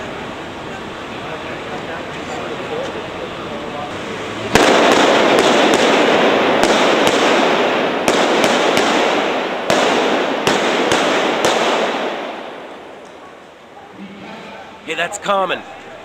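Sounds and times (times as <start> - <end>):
continuous rushing noise: 0.0 - 16.0
prop guns firing blanks: 4.4 - 13.6.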